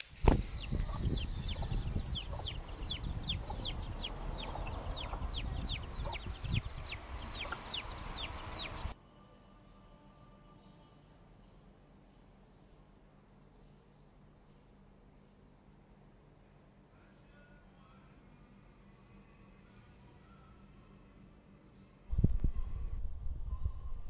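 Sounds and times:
chicks peeping: 0.2s - 9.0s.

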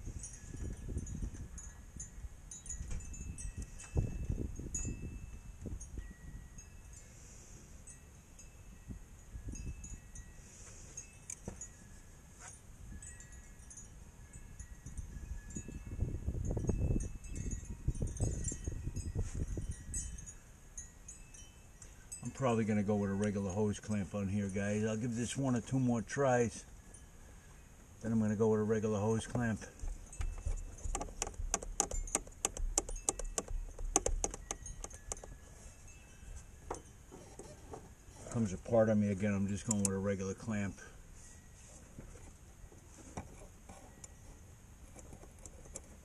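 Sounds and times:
faint high tinkling: 0.0s - 46.0s
rustling and knocking of pliers: 10.6s - 11.8s, 29.1s - 38.7s, 41.6s - 46.0s
metallic hose clamp clicks: 30.1s - 35.3s, 39.6s - 40.0s.

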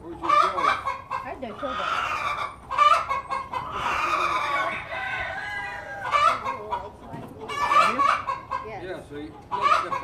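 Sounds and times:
chickens clucking: 0.0s - 10.0s
rooster crowing: 3.7s - 6.4s.

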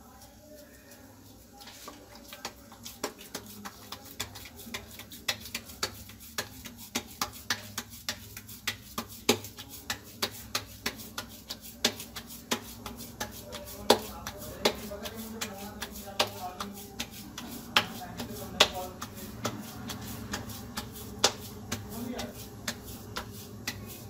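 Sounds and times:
hands slapping dough: 0.2s - 24.0s.

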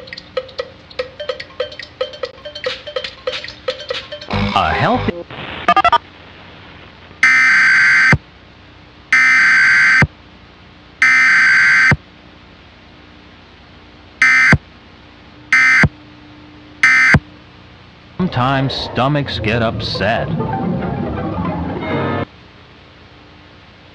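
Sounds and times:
buzzy data tone bursts: 1.7s - 6.0s, 7.2s - 8.2s, 9.1s - 10.1s, 11.0s - 12.0s, 14.2s - 14.6s, 15.5s - 16.0s, 16.8s - 17.4s.

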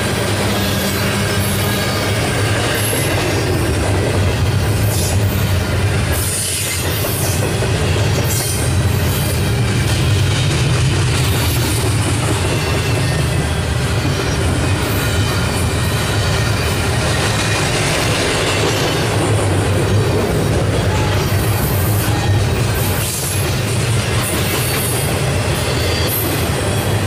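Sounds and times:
clickety-clack over rail joints: 0.0s - 27.0s
train wheels rumbling on rail: 0.0s - 27.0s.

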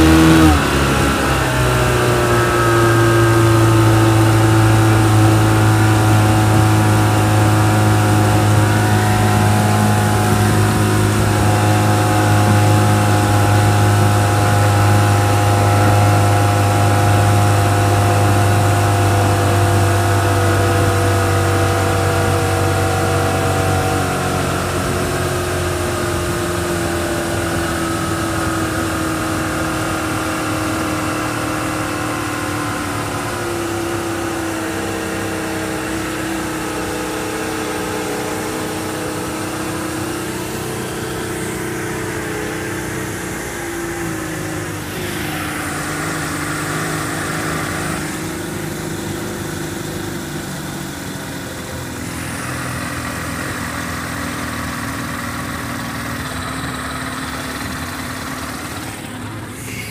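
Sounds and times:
boat wake rushing: 0.0s - 59.9s
outboard motor running: 0.0s - 59.9s.

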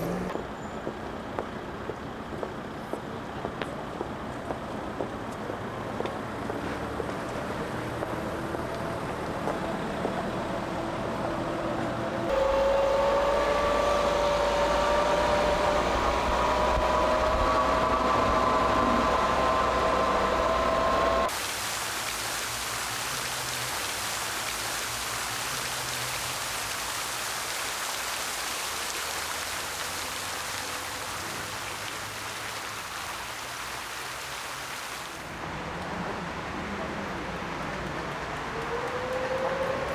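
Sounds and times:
street traffic noise: 0.0s - 39.9s
electric scooter motor whining: 12.3s - 21.3s
steady hiss: 21.3s - 35.3s.

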